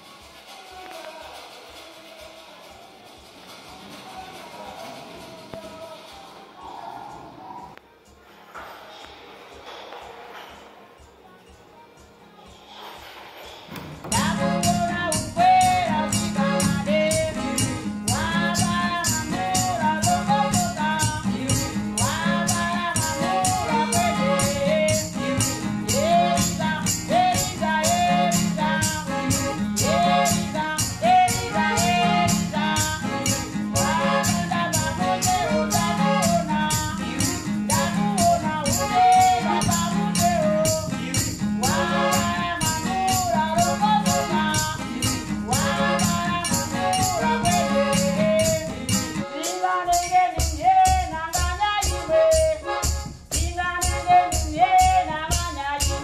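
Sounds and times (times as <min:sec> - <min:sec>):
shaker beat: 0:00.0 - 0:08.3, 0:14.0 - 0:56.0
acoustic guitar: 0:00.0 - 0:56.0
bass: 0:14.0 - 0:49.4
person singing: 0:14.1 - 0:56.0.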